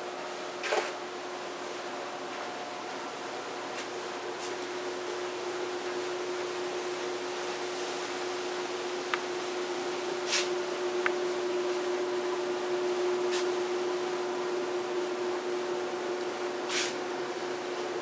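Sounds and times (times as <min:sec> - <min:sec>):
room hum with held tone: 0:00.0 - 0:18.0
hiss: 0:10.2 - 0:10.6, 0:13.2 - 0:13.7, 0:16.6 - 0:17.1.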